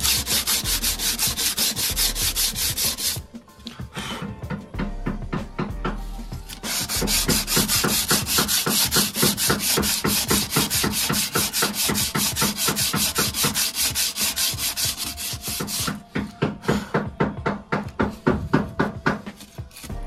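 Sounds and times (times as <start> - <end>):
sanding sponge rubbing metal rim: 0.0 - 3.2, 6.5 - 16.0.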